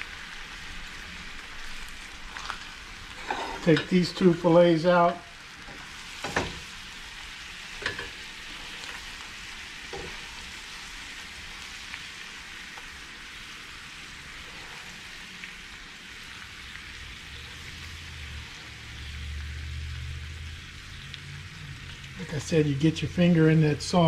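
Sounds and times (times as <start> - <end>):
sauce sizzling in a skillet: 0.0 - 24.0
spatula scraping a pan: 3.1 - 3.9.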